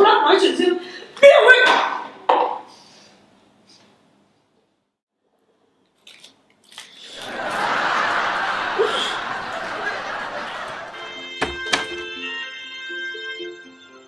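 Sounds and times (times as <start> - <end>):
laugh track audience laughter: 7.2 - 11.3.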